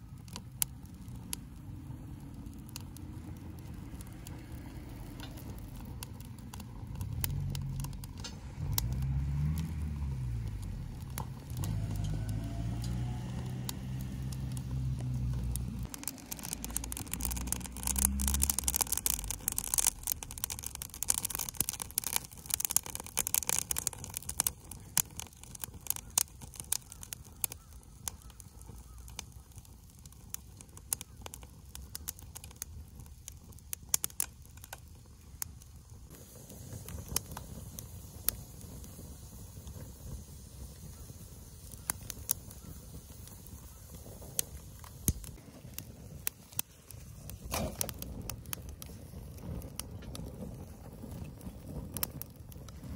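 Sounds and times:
fire crackling and popping: 0:00.0 - 0:52.9
low droning hum: 0:07.0 - 0:19.2.

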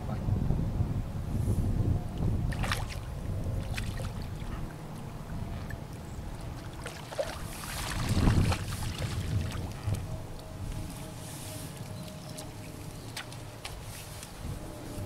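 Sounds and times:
wind rumbling on microphone: 0:00.0 - 0:15.0
fish splashing in water: 0:02.5 - 0:04.8, 0:05.4 - 0:10.1.

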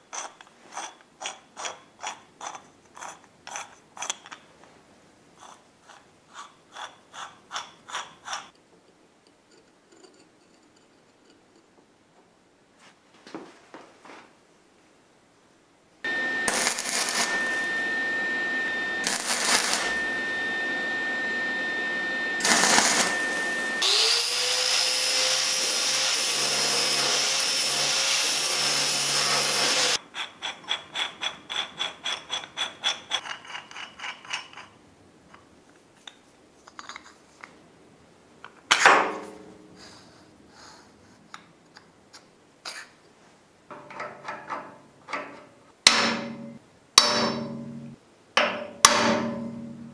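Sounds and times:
steel parts scraping: 0:00.0 - 0:04.4, 0:09.5 - 0:11.7, 0:16.4 - 0:18.0, 0:19.0 - 0:20.2, 0:22.4 - 0:34.8
power tool running: 0:16.1 - 0:30.0.

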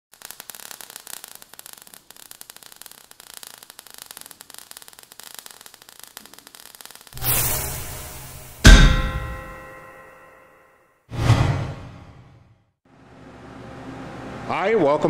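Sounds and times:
sparks crackling: 0:00.1 - 0:10.2.

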